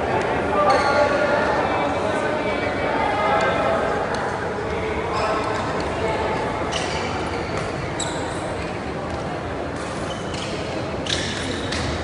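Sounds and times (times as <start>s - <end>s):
murmur of voices: 0.0s - 12.0s
shoe squeaks: 6.7s - 8.7s, 9.8s - 12.0s.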